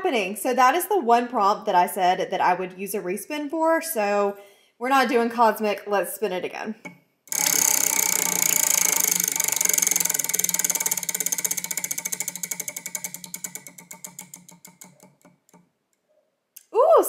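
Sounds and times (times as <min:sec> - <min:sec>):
prize wheel ticking: 0:07.3 - 0:15.6.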